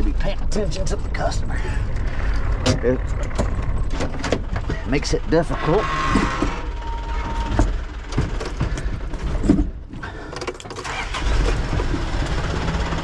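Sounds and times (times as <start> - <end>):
diesel truck engine running: 0.0 - 13.0
knocks and clicks in cab: 2.6 - 4.8, 6.2 - 10.8.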